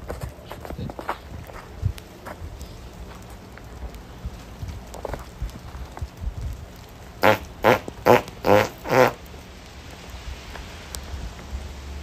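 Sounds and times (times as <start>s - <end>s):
loud farts: 7.2s - 9.3s.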